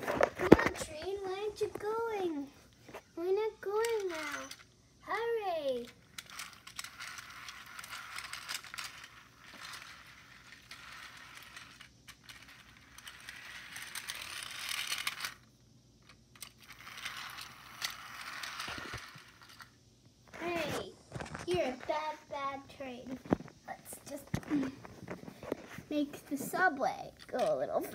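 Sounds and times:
toy train motor whirring: 0:00.5 - 0:19.8, 0:25.4 - 0:27.9.

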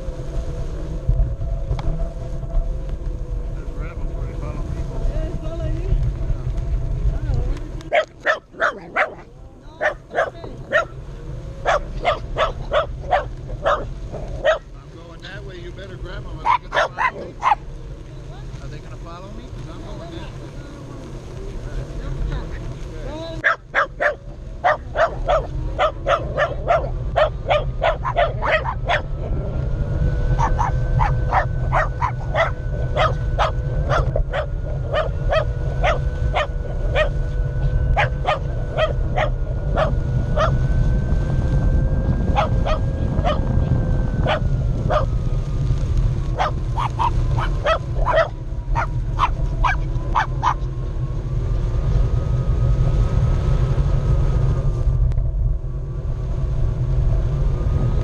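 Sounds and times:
electric motor whine: 0:00.0 - 0:58.0
wind rumble: 0:00.0 - 0:58.0
dogs barking: 0:07.9 - 0:11.0, 0:11.6 - 0:14.7, 0:16.4 - 0:17.7, 0:23.4 - 0:29.2, 0:30.3 - 0:40.7, 0:42.3 - 0:43.6, 0:44.2 - 0:45.1, 0:46.3 - 0:50.7.

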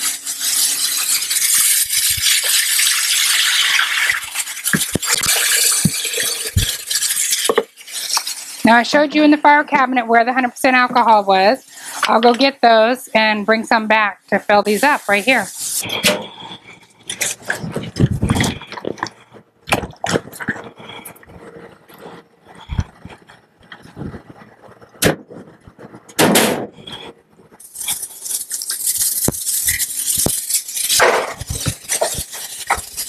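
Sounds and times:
rustling and scraping: 0:15.4 - 0:19.4, 0:20.1 - 0:33.0
plastic jugs being handled: 0:17.1 - 0:21.4.

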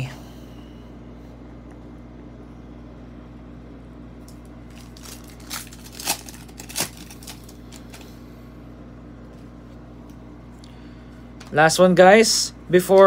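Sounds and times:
foil wrapper crinkling and tearing: 0:04.2 - 0:08.2.

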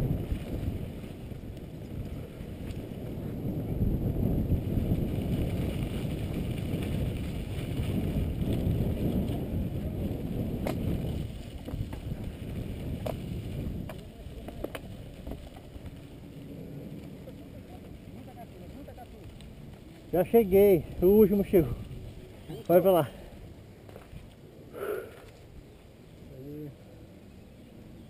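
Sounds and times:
wind buffeting microphone: 0:00.0 - 0:25.8
bike tyre rumble: 0:00.0 - 0:28.0
bike clicks and rattles: 0:04.4 - 0:21.4.

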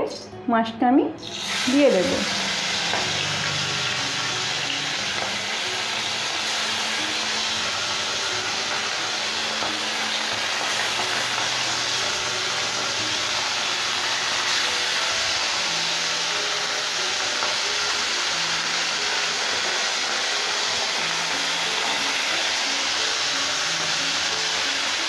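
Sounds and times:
fish sizzling in oil: 0:01.2 - 0:25.0.

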